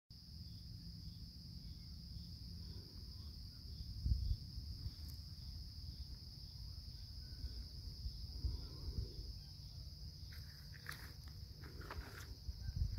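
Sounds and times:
crickets chirping: 0.1s - 12.9s
low rumble on microphone: 2.4s - 10.2s.

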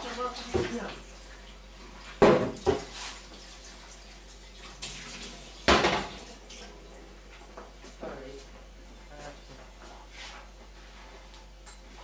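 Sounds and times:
kitchenware clattering: 5.7s - 6.2s.

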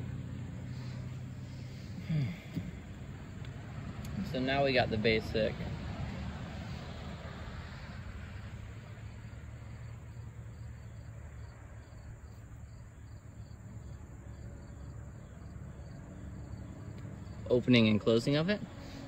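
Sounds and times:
insect chirping: 0.0s - 5.2s, 6.1s - 19.0s
low background rumble: 0.0s - 18.0s.

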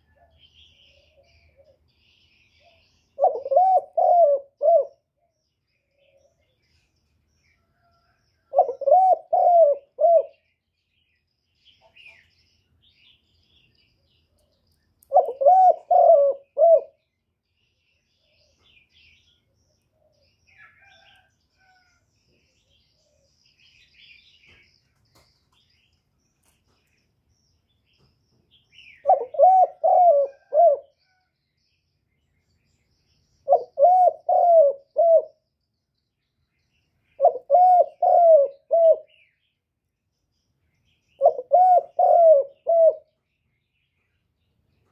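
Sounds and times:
small birds chirping: 0.0s - 44.9s
dove cooing: 0.1s - 1.8s, 2.6s - 5.0s, 8.5s - 10.4s, 15.1s - 17.0s, 28.9s - 31.2s, 33.4s - 35.4s, 37.2s - 39.2s, 41.2s - 43.2s.

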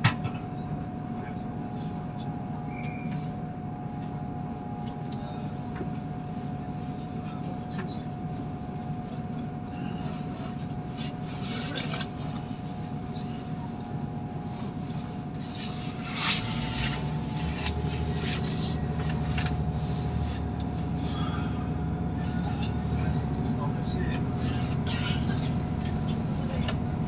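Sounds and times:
diesel train engine rumble: 0.0s - 27.0s
steady whine: 7.9s - 27.0s.

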